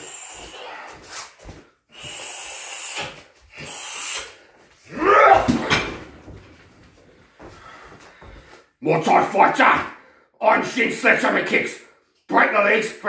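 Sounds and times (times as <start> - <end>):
man breathing heavily: 0.0 - 4.9, 6.9 - 8.8, 9.9 - 10.4
man yelling: 4.9 - 5.7.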